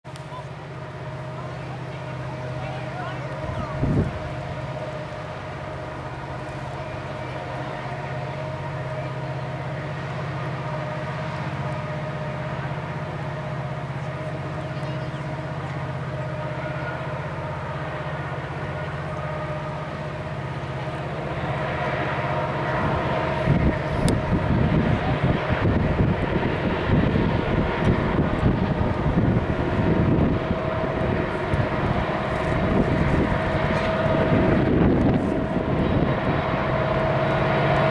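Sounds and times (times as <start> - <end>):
diesel locomotive engine drone: 0.0 - 37.9.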